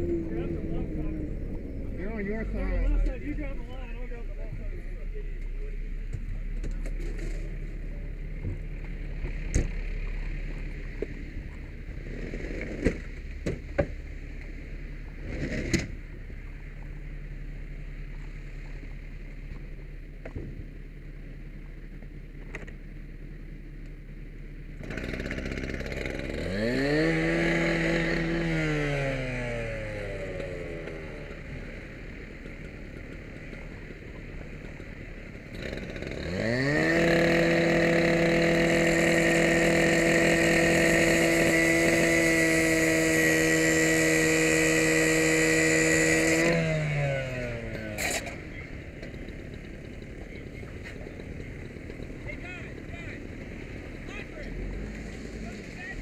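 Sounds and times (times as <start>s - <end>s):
cut-off saw revving and cutting chain: 24.8s - 31.5s, 35.5s - 48.5s.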